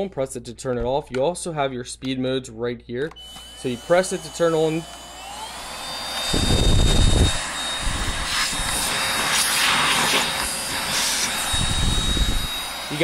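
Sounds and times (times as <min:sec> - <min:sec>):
stick vacuum whining: 0:03.1 - 0:13.0.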